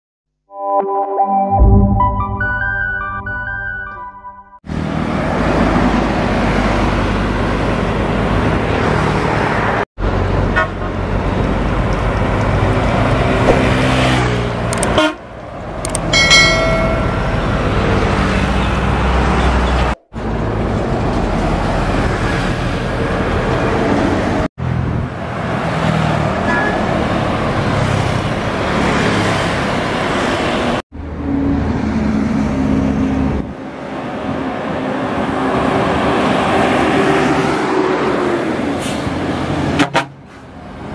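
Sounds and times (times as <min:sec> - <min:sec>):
highway traffic passing: 0:04.6 - 0:40.9
vehicle horn blast: 0:14.9 - 0:15.2.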